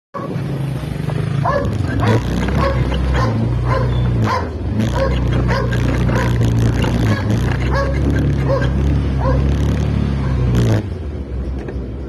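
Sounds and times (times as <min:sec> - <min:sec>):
dog barking: 0:00.2 - 0:00.4, 0:01.4 - 0:09.6
motorcycle engine running: 0:00.2 - 0:12.0.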